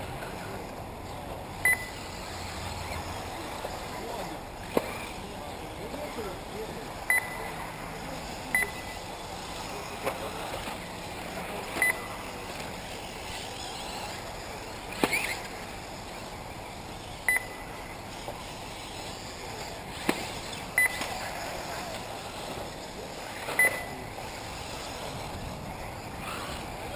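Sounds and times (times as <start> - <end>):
rc cars hissing on dirt track: 0.0 - 26.9
timing system high beeps: 1.6 - 2.0, 7.1 - 7.5, 8.5 - 9.0, 11.8 - 12.1, 17.3 - 17.7, 20.8 - 21.0, 23.6 - 24.0.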